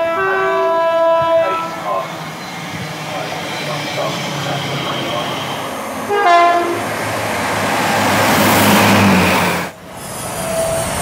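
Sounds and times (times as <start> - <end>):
train horn blast: 0.0 - 2.0, 6.1 - 6.9
electric train rushing past: 0.0 - 11.0.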